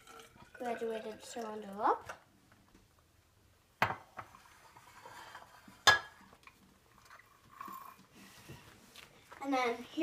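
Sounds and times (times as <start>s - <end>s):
liquid pouring: 0.0s - 2.0s
glassware clinking: 5.8s - 6.3s.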